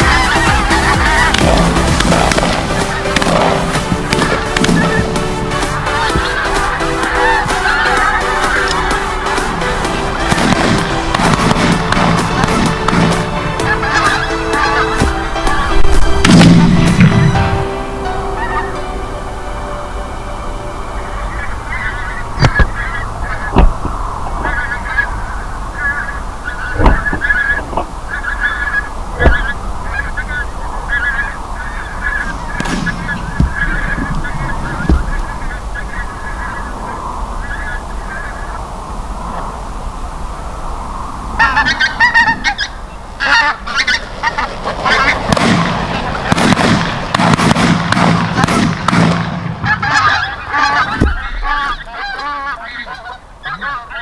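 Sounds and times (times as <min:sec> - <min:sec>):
geese honking: 0:00.0 - 0:54.0
dull thumps: 0:32.6 - 0:35.4.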